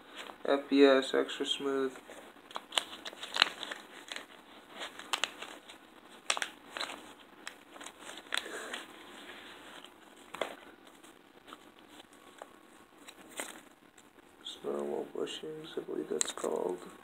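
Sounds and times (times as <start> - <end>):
plastic bag crinkling: 2.0 - 14.1.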